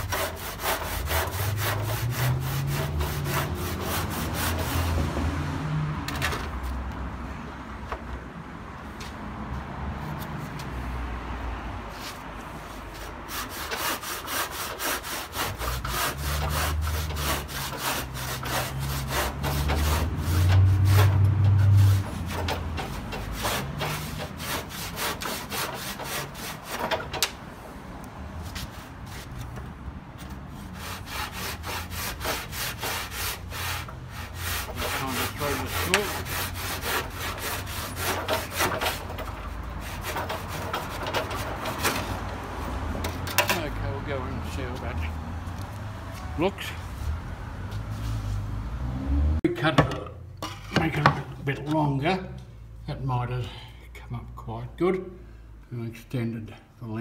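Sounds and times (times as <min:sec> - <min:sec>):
handsaw cutting plaster: 0:00.0 - 0:04.9, 0:12.9 - 0:27.0, 0:30.7 - 0:42.0.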